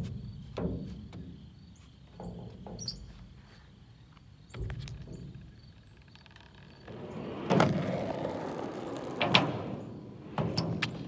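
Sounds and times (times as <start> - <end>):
skateboard wheels rolling: 5.5 - 11.0
skateboard knocks: 6.9 - 11.0.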